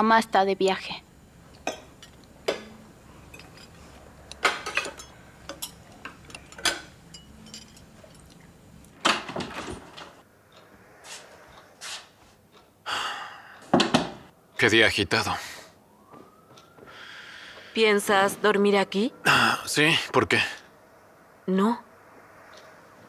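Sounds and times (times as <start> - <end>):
cutlery clinking on plates: 4.4 - 8.3.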